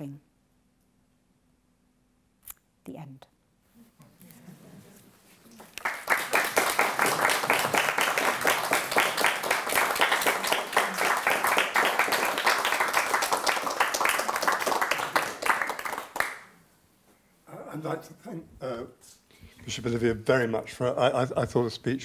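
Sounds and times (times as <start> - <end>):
audience applauding: 5.6 - 16.6.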